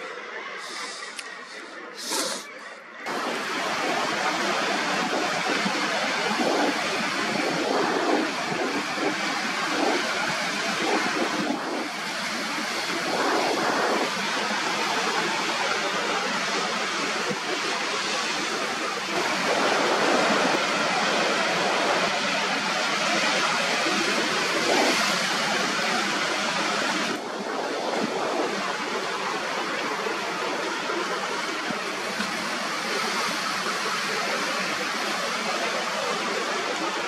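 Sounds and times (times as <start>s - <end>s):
sea water washing over rocks: 3.1s - 37.0s.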